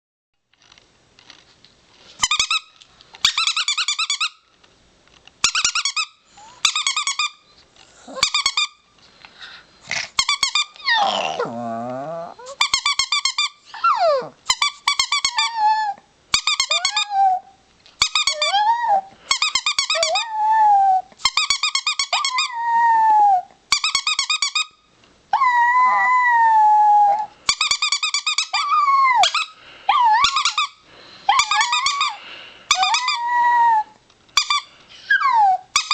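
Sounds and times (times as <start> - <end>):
dog howling: 10.8 - 12.6, 25.4 - 27.3, 32.8 - 34.0.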